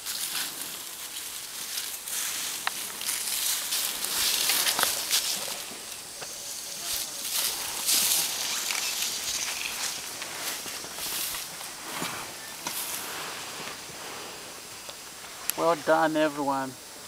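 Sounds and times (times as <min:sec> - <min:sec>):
leaves rustling under footsteps: 0:00.0 - 0:17.0
twigs snapping: 0:02.6 - 0:05.4.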